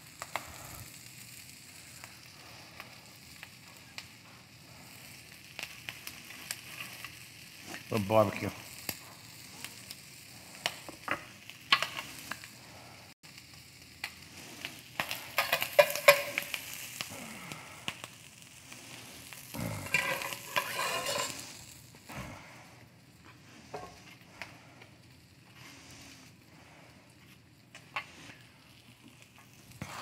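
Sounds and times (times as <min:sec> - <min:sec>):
food sizzling: 0:00.0 - 0:30.0
spoon clinking and scraping: 0:15.3 - 0:16.4, 0:19.9 - 0:21.4.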